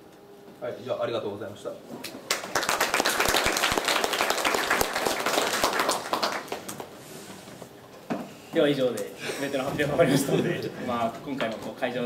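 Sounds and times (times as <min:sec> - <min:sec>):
audience applauding: 0:02.3 - 0:06.9.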